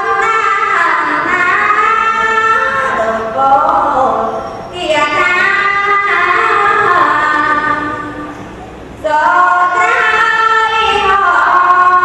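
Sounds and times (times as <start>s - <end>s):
person chanting: 0.0s - 8.3s.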